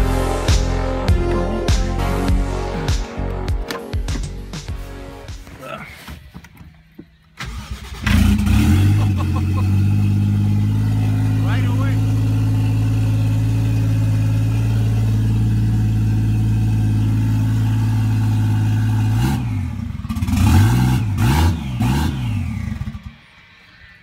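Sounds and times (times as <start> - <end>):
car engine idling: 6.0 - 20.3
engine revving: 7.4 - 24.0.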